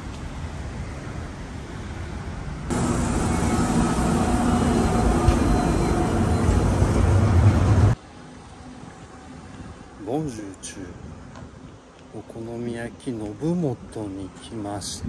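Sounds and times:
streetcar motor hum: 0.0s - 10.0s
wheels rumbling on rails: 0.0s - 10.0s
light traffic noise: 0.0s - 15.0s.

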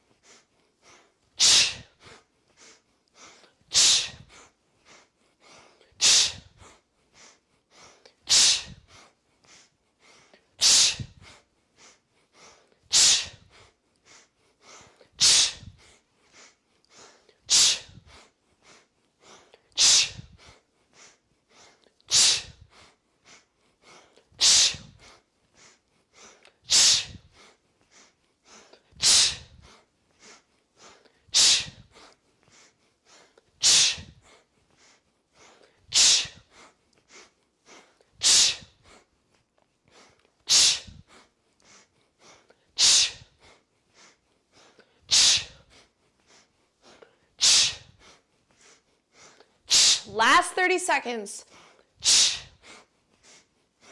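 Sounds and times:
quiet sniffed inhales: 0.0s - 50.1s, 51.4s - 53.9s
sharp forceful exhale: 1.4s - 1.9s, 8.3s - 8.8s, 15.2s - 15.8s, 19.8s - 20.3s, 24.4s - 24.9s, 26.7s - 27.3s, 29.0s - 29.6s, 31.4s - 31.9s, 33.6s - 34.2s, 35.9s - 36.4s, 38.2s - 38.7s, 40.5s - 41.1s, 42.8s - 43.3s, 45.1s - 45.6s, 47.4s - 48.0s, 49.7s - 50.1s, 52.0s - 52.6s.

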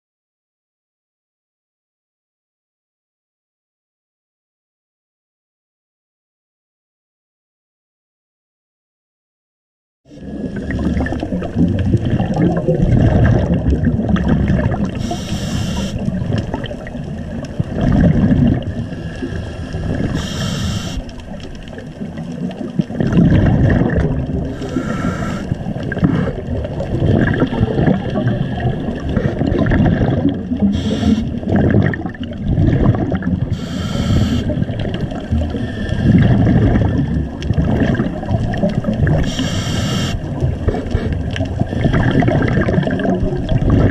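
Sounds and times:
exhaled bubbles underwater: 10.1s - 43.9s
regulator inhalation hiss: 15.0s - 16.0s, 18.9s - 21.1s, 24.5s - 26.3s, 30.7s - 31.4s, 33.5s - 34.6s, 39.2s - 40.3s.

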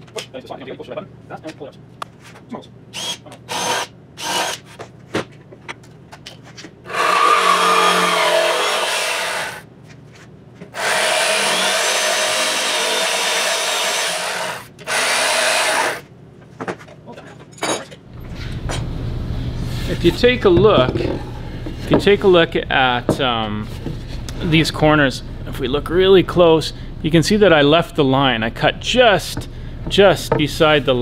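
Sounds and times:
jigsaw cutting wood boards: 3.0s - 4.6s, 6.9s - 9.6s, 10.8s - 16.0s.

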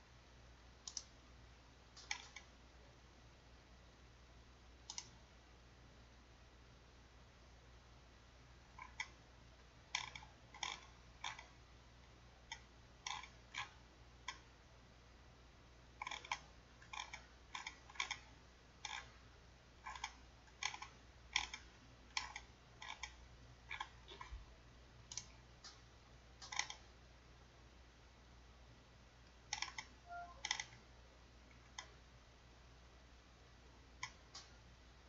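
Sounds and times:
mouse and keyboard clicks: 0.8s - 1.1s, 2.0s - 2.5s, 4.8s - 5.2s, 9.9s - 11.6s, 12.5s - 14.5s, 16.0s - 19.1s, 19.8s - 24.4s, 26.4s - 26.9s, 29.5s - 30.8s, 34.0s - 34.6s.

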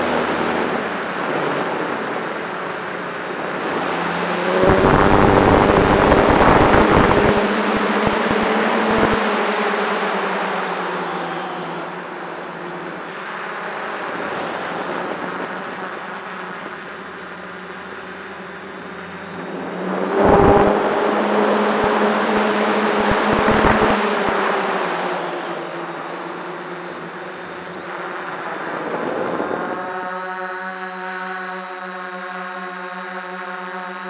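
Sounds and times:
drone propellers whirring: 0.0s - 31.5s
wind buffeting microphone: 4.2s - 9.2s, 21.6s - 24.0s.

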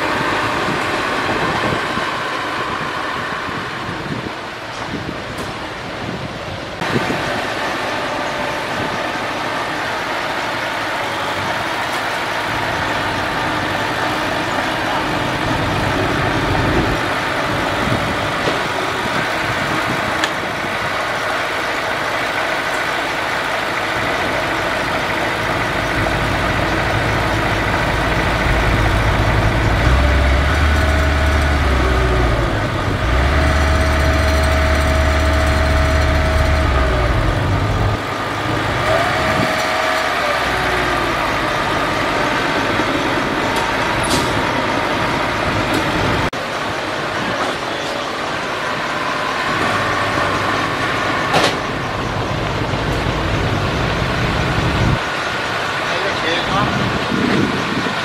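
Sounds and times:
heavy low hum: 0.0s - 46.3s
bulldozer diesel engine under load: 0.0s - 58.0s.

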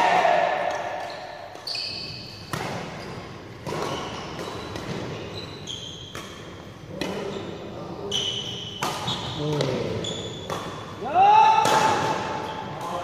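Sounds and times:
racket hitting shuttlecock: 0.5s - 5.3s, 6.0s - 7.2s, 8.5s - 12.9s
shoes squeaking on floor: 1.0s - 6.5s, 7.2s - 10.6s.

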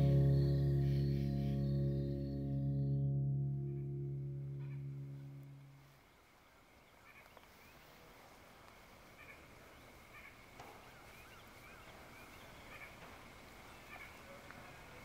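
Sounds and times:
steady high tone: 0.0s - 5.6s.

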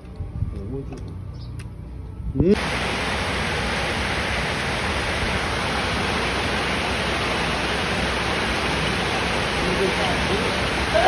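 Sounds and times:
heavy rain pouring: 2.6s - 11.0s.

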